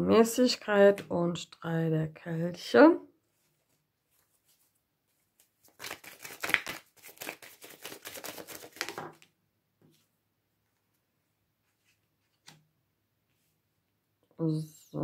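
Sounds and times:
cards being shuffled: 5.4s - 9.3s.

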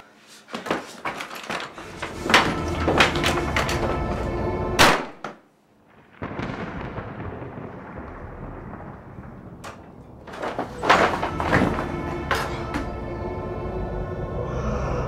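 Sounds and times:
film music: 1.8s - 5.3s, 10.3s - 15.0s.

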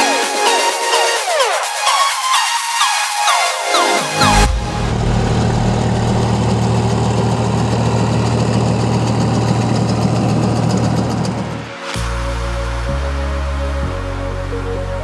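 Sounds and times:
tractor diesel engine running: 4.5s - 11.3s.

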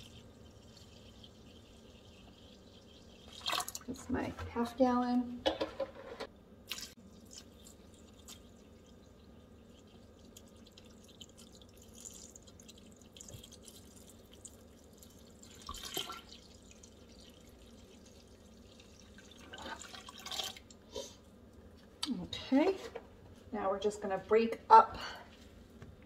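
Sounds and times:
water pouring into a pot: 0.0s - 4.0s, 6.6s - 21.0s.

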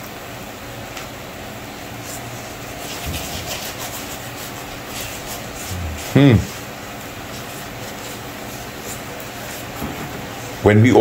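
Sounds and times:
steady hiss: 0.0s - 11.0s
brush scratching on flatbread: 2.0s - 9.8s.

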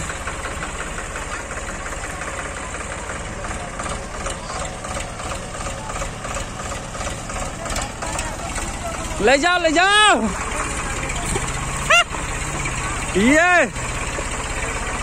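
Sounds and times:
tractor diesel engine chugging: 0.0s - 15.0s.

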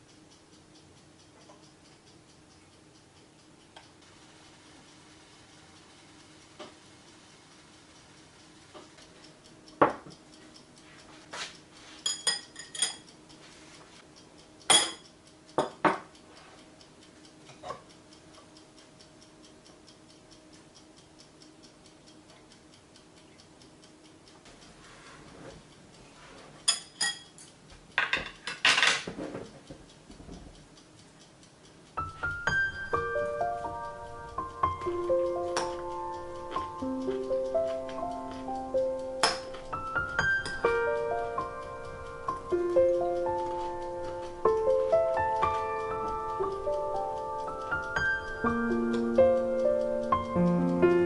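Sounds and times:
faint steady ticking: 0.0s - 51.0s
ceramic bowl clinking: 12.1s - 13.0s
soft music: 32.0s - 51.0s.

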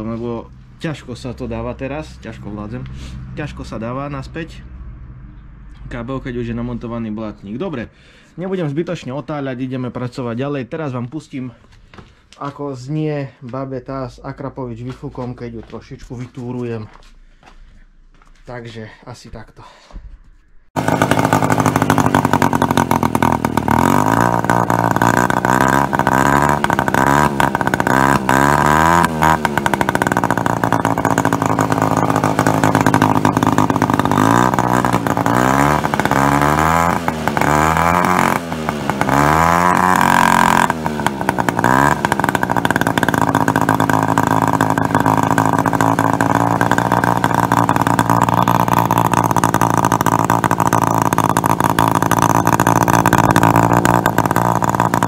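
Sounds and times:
moped engine idling and revving: 0.0s - 8.1s, 20.7s - 55.0s.

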